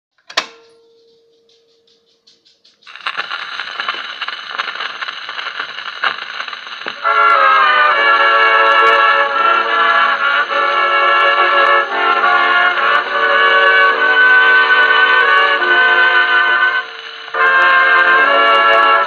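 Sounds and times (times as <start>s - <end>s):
needle ticking in groove: 0.2s - 4.1s
gramophone music: 0.2s - 19.0s
record surface crackle: 0.4s - 19.0s.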